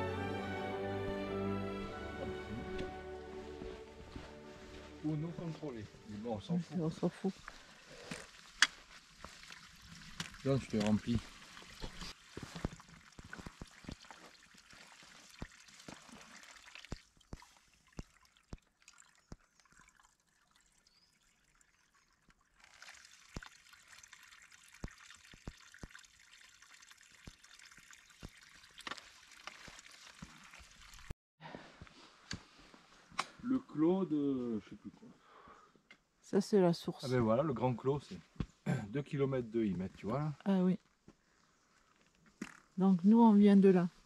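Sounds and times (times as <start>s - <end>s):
spring water trickling over stones: 4.0s - 31.1s.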